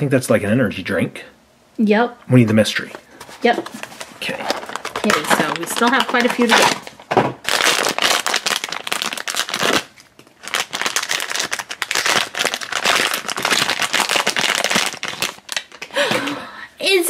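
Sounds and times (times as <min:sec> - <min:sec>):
foil bag crinkling: 0:03.1 - 0:16.4.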